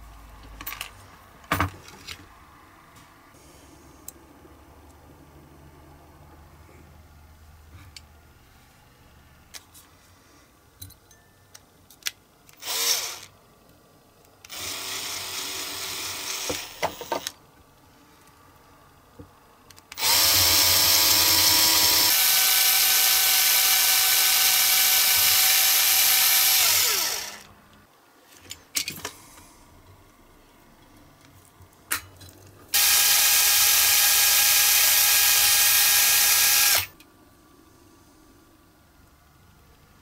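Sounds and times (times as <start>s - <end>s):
cordless drill drilling into metal: 12.6s - 13.3s, 14.5s - 17.2s, 20.0s - 27.5s, 32.8s - 37.0s.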